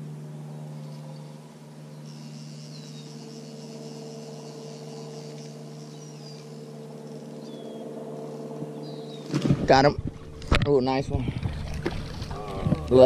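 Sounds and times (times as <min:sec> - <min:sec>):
high insect buzz: 0:00.0 - 0:09.5
low mechanical hum: 0:00.0 - 0:13.0.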